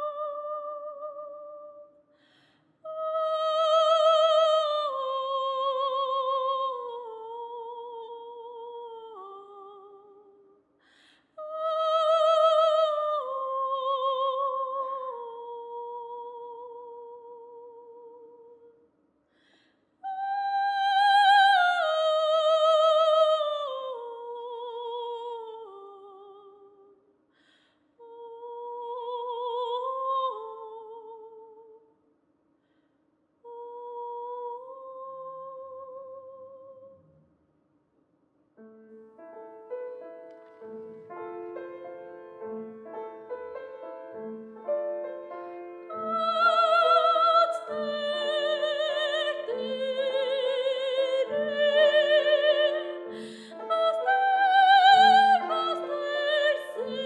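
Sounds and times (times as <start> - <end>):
soprano singing with vibrato: 0.0 - 2.1, 2.8 - 10.6, 11.3 - 18.8, 20.0 - 27.0, 28.0 - 31.8, 33.4 - 37.0, 45.7 - 57.0
singer breathing: 2.1 - 2.8, 10.8 - 11.4, 19.3 - 20.0, 27.3 - 28.0, 53.1 - 53.6.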